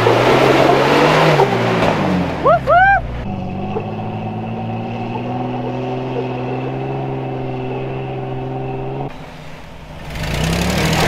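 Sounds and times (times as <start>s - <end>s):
vehicle engine running under load: 0.0s - 11.0s
hissy outdoor ambience: 2.8s - 11.0s.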